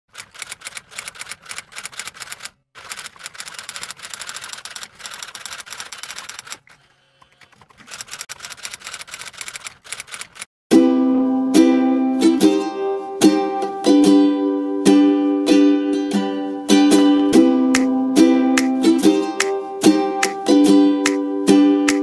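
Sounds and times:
rapid typing clicks: 0.1s - 10.5s.

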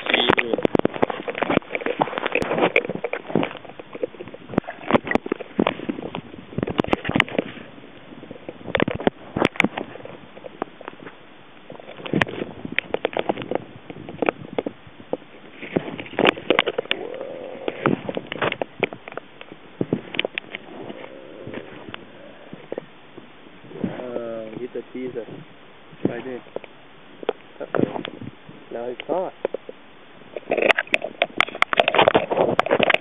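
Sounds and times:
rushing water underwater: 15.3s - 23.9s.

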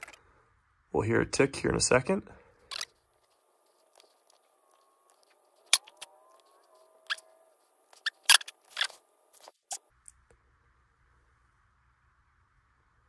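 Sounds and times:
footsteps: 2.9s - 9.8s.

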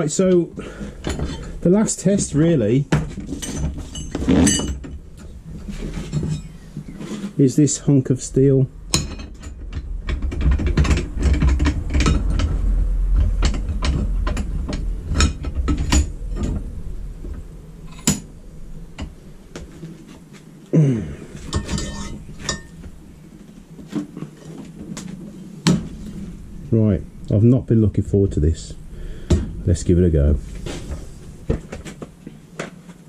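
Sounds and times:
tools clattering on workbench: 2.9s - 5.0s, 21.4s - 22.8s.

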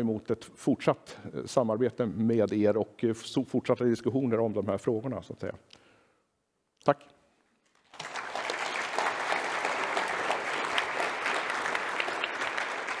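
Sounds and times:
audience clapping: 7.7s - 13.0s.

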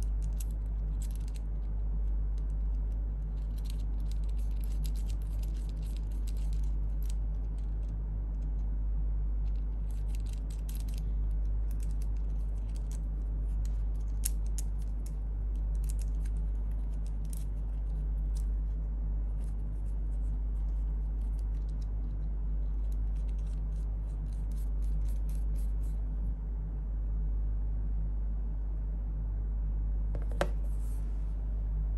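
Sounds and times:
small metal parts clicking: 0.0s - 1.7s, 2.4s - 8.7s, 9.4s - 18.8s, 20.6s - 25.9s
steady low hum: 0.0s - 31.9s.

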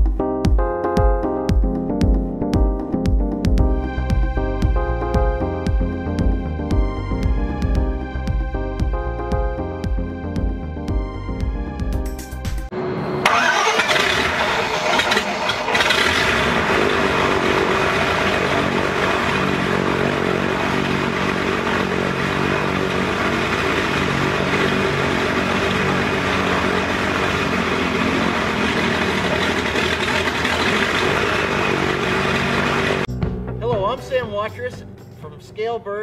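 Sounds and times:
radial aircraft engine running: 12.6s - 33.1s.

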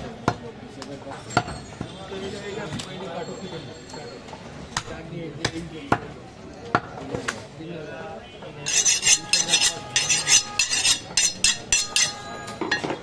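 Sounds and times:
knife scraping against cleaver: 8.6s - 13.0s.

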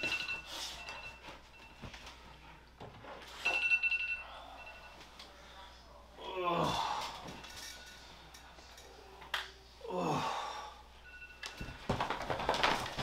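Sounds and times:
person sighing: 6.2s - 7.3s, 9.8s - 10.8s.

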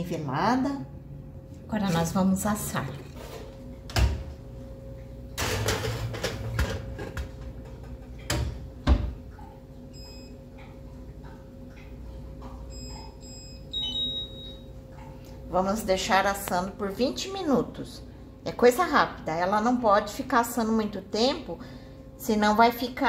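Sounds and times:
steady hum: 0.0s - 23.0s
short key beeps: 12.7s - 14.6s
long beep: 12.7s - 14.7s.

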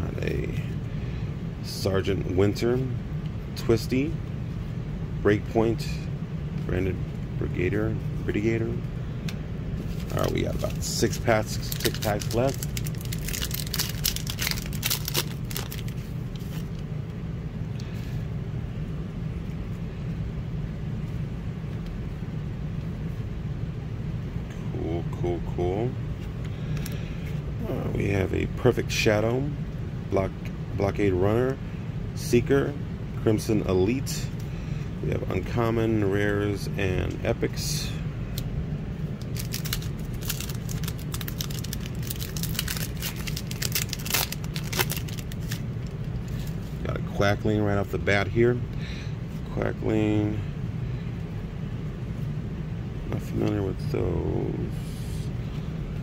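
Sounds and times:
low hum: 0.0s - 56.0s
foil wrapper crinkling: 9.8s - 16.8s, 39.2s - 46.6s.

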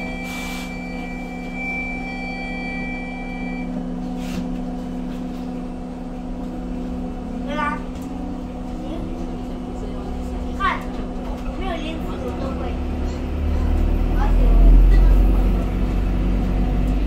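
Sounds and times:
high steady whine: 0.0s - 4.0s
bus cabin low hum: 0.0s - 17.0s
short hisses of air: 0.2s - 0.7s.

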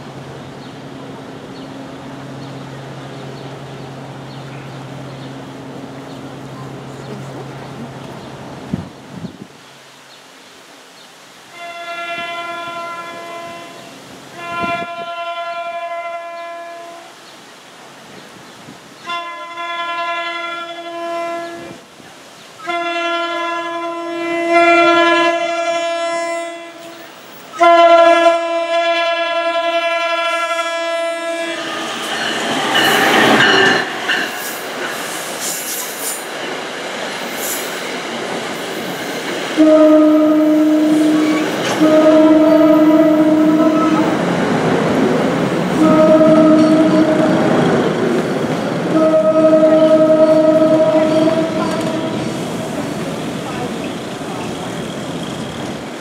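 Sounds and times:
train passing: 0.0s - 9.8s, 11.5s - 56.0s
train horn blasts: 11.5s - 17.2s, 19.0s - 21.8s, 22.6s - 34.3s, 39.6s - 44.4s, 45.6s - 48.0s, 48.8s - 53.0s.

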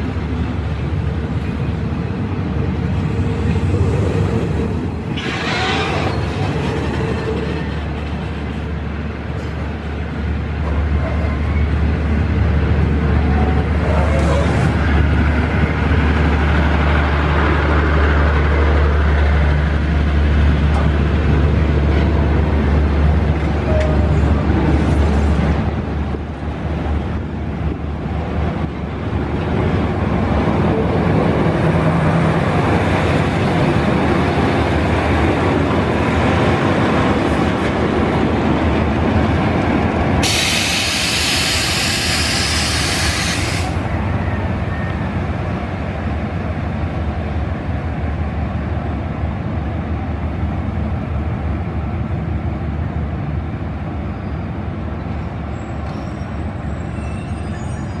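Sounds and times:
diesel train rumbling: 0.0s - 58.0s
loud hiss of air: 40.2s - 43.8s.

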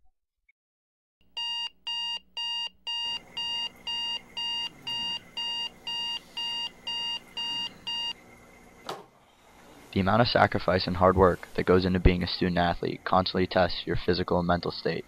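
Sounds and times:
alarm clock beeping: 1.4s - 8.2s.

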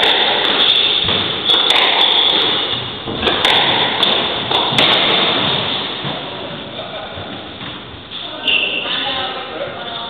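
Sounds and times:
squash ball knocks: 0.0s - 6.7s.

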